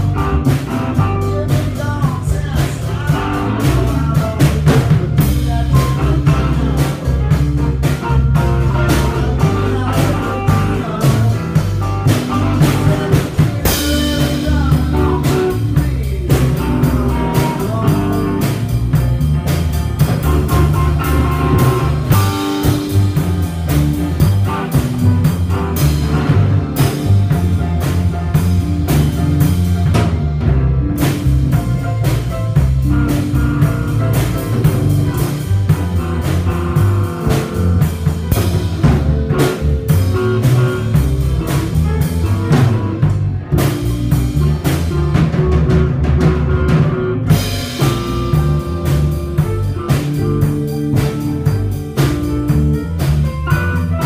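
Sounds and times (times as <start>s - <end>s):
drum kit beat: 0.0s - 54.0s
electric guitar through an amp: 0.0s - 54.0s.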